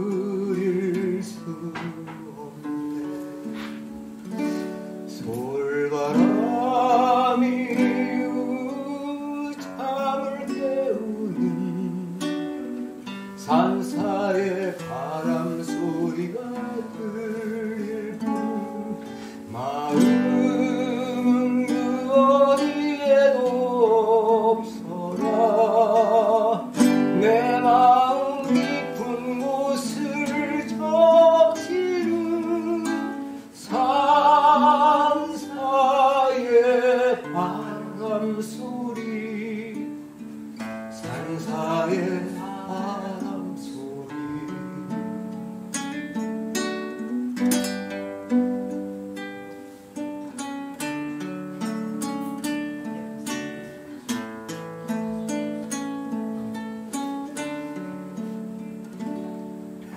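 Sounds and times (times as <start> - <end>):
man singing: 0.0 - 47.3
acoustic guitar: 0.0 - 59.9.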